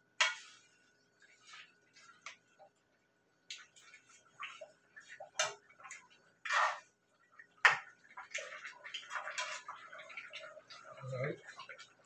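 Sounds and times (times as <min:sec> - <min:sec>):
spoon scraping and knocking pan: 0:00.2 - 0:00.7.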